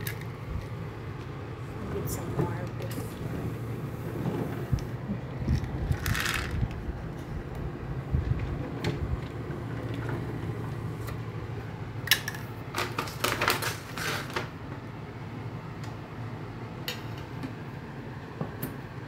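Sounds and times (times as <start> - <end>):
steady low hum: 0.0 - 19.0
sliding window clicking and rattling: 1.9 - 11.3.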